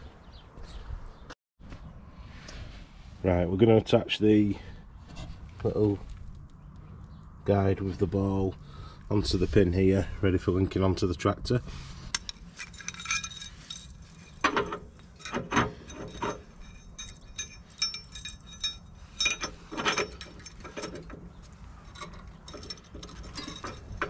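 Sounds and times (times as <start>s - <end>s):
chain jangling: 12.2s - 21.2s, 21.8s - 24.0s
steel clinks and knocks: 12.2s - 24.0s.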